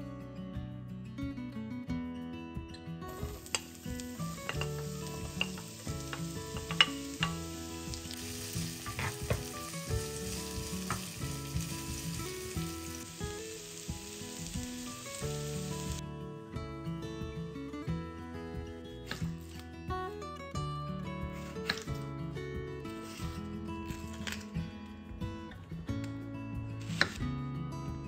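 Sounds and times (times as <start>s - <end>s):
acoustic guitar music: 0.0s - 28.0s
food sizzling in a frying pan: 3.1s - 16.0s.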